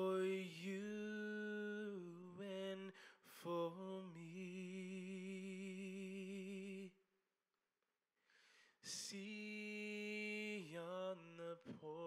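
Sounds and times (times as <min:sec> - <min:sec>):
man singing a hymn: 0:00.0 - 0:06.8, 0:08.9 - 0:12.0
singer breathing: 0:03.0 - 0:03.2, 0:08.2 - 0:08.8.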